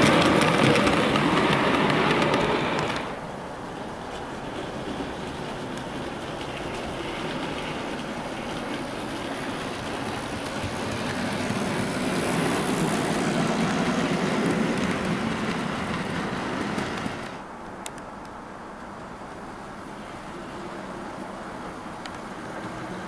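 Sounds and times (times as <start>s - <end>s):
model train motor hum: 0.0s - 3.3s, 4.0s - 17.4s
wheel-on-rail rumble: 0.0s - 23.0s.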